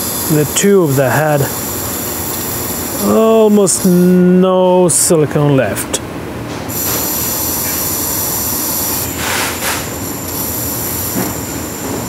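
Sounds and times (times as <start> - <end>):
powered caulking gun hissing: 0.0 - 4.2, 6.7 - 12.0.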